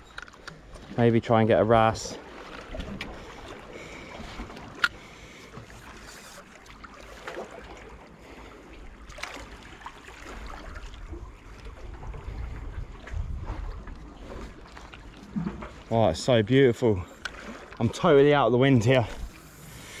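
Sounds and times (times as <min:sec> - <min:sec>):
water lapping: 0:00.0 - 0:20.0
wind on microphone: 0:11.0 - 0:14.6.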